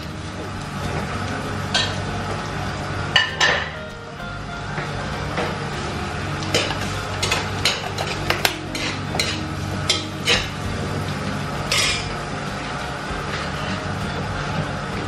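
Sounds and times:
steady low hum: 0.0 - 15.0
metal spoon scraping a wok: 6.5 - 10.6.

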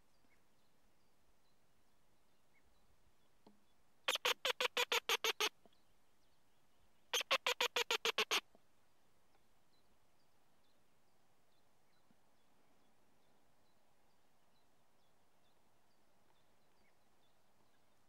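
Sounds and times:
mouse-squeak fox call squeaks: 4.1 - 5.5, 7.2 - 8.4.

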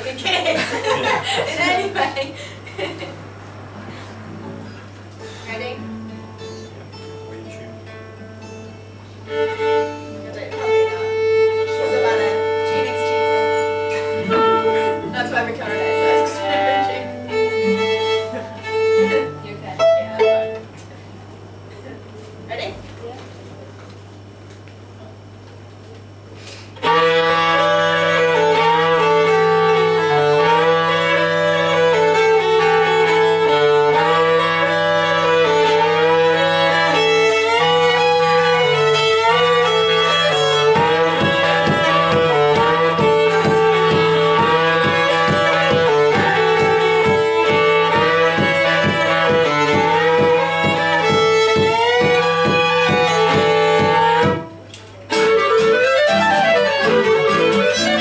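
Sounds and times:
acoustic guitar strumming: 2.9 - 20.8, 26.8 - 58.0
clarinet: 9.3 - 20.6, 26.8 - 58.0
violin: 9.3 - 20.7, 26.8 - 58.0.

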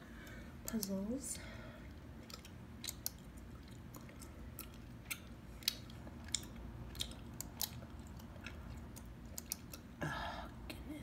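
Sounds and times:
gum chewing with wet clicks: 0.2 - 1.1, 1.8 - 10.0.

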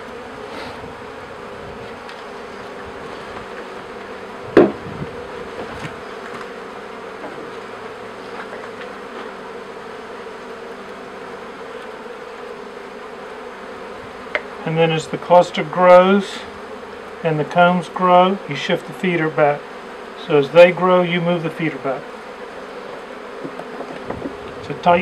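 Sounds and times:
honey bees humming: 0.0 - 25.0
sharp wooden knock: 4.6 - 4.8.

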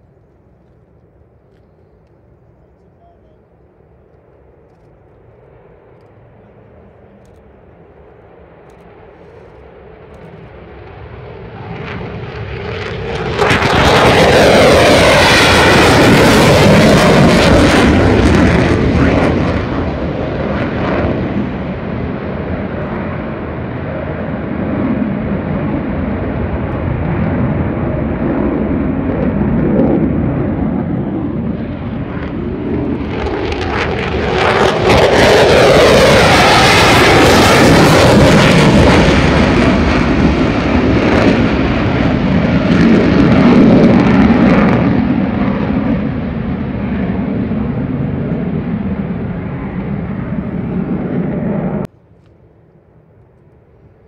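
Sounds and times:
phasing whoosh of passing jet: 8.3 - 51.9
fighter jets roaring: 10.8 - 51.9.

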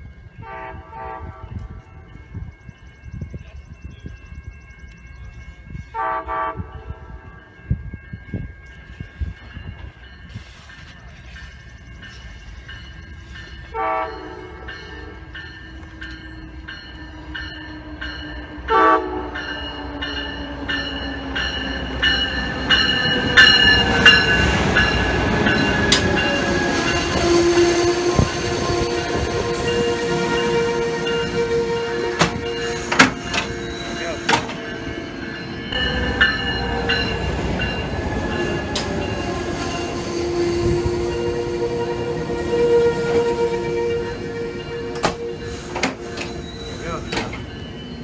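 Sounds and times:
train wheels rumbling on rails: 0.0 - 48.0
train horn blasts: 0.4 - 2.0, 5.9 - 7.4, 13.6 - 16.0, 17.0 - 20.5, 23.4 - 34.6, 39.2 - 46.8.

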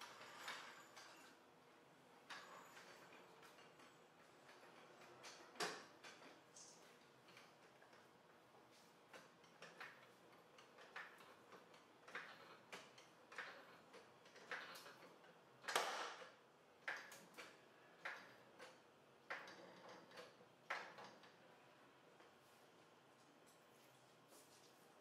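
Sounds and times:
floor jack pumping clicks: 2.3 - 21.4.

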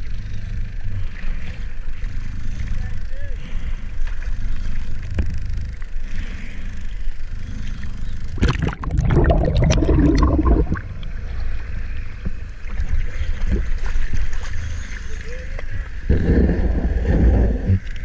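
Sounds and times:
water sloshing: 8.4 - 11.7
underwater gurgling bubbles: 8.4 - 13.8.

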